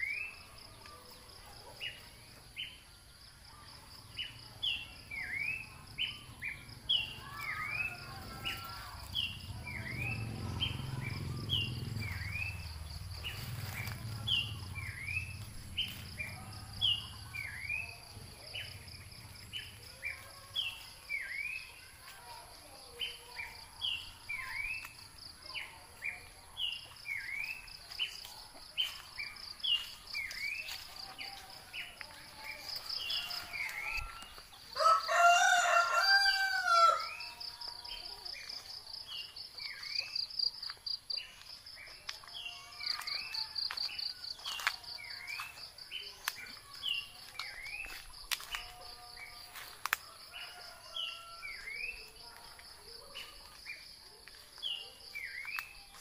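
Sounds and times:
rooster crowing: 7.2s - 9.2s, 32.9s - 37.6s, 49.9s - 51.9s.

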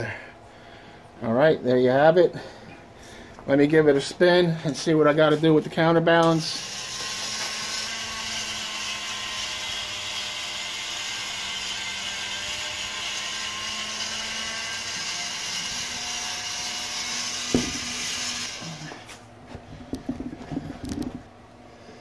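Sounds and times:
rotisserie electric motor running: 6.2s - 19.2s
sharp knock: 17.5s - 17.9s.

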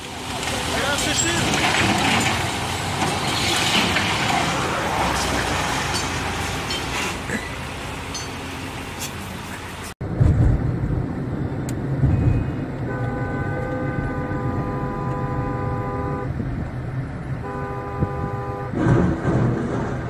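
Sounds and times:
car driving rumble: 0.0s - 20.0s
car horn blast: 12.8s - 16.3s, 17.4s - 18.8s.

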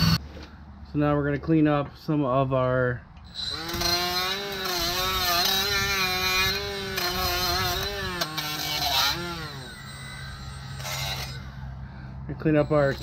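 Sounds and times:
rotary tool grinding metal: 3.2s - 13.0s.

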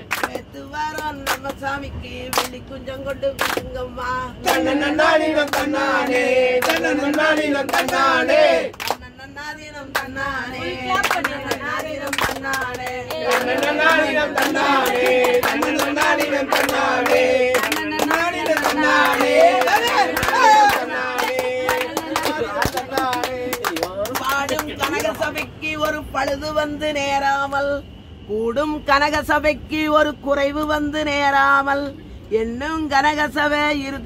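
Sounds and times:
hands clapping rhythmically: 0.0s - 1.6s, 2.3s - 2.6s, 3.2s - 3.7s, 4.4s - 4.8s, 5.4s - 9.0s, 11.0s - 26.4s
group singing folk song: 0.0s - 8.8s, 9.8s - 24.4s.

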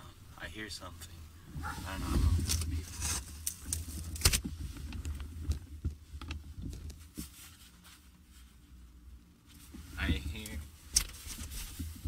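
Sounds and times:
low rumble: 0.0s - 3.3s.

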